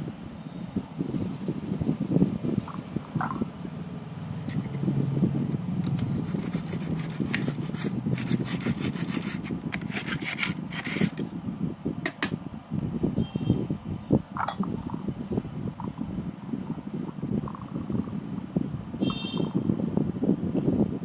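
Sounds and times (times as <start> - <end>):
knife scraping through sharpener: 5.9 - 11.2.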